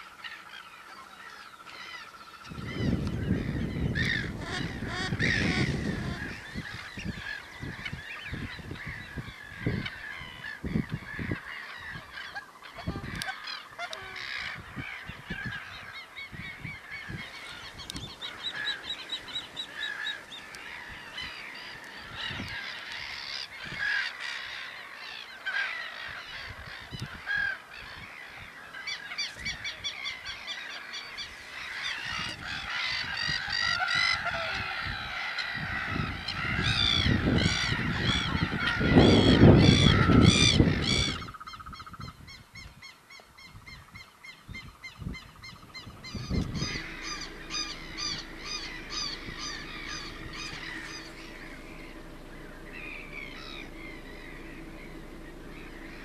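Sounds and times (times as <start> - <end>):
waterbirds calling: 0.0 - 56.0
low rumble: 45.7 - 56.0.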